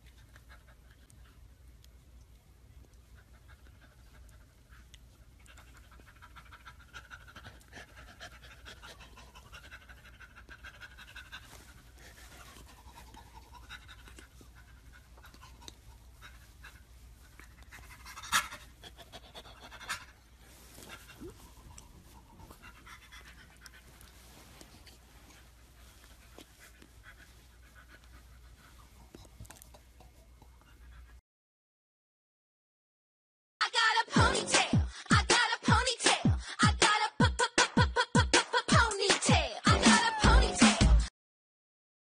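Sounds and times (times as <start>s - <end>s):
chimpanzee panting: 3.0s - 31.2s.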